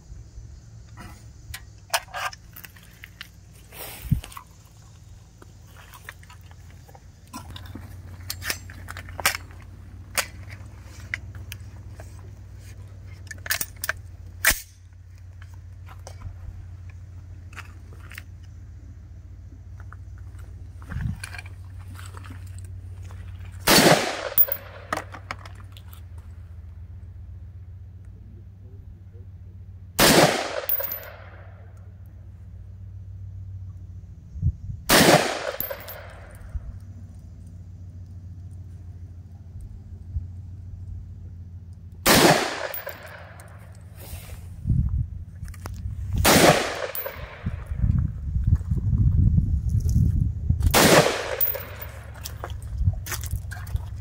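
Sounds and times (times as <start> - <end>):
rifle shots: 23.6 - 25.0, 30.0 - 31.6, 34.9 - 36.4, 42.0 - 43.5, 46.2 - 47.7, 50.7 - 52.2.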